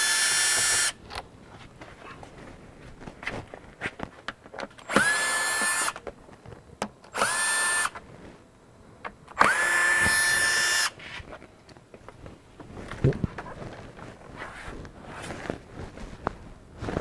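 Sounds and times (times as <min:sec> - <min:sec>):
power drill whining: 0:00.0 - 0:01.0, 0:04.9 - 0:06.0, 0:07.1 - 0:08.0, 0:09.4 - 0:11.0.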